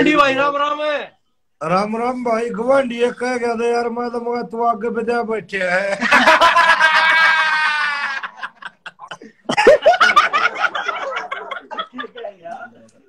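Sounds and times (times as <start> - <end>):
people laughing: 5.9 - 12.9.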